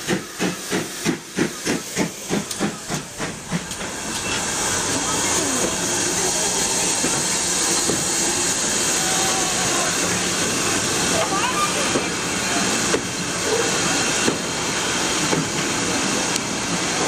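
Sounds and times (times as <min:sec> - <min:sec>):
steam locomotive exhaust beats: 0:00.0 - 0:17.0.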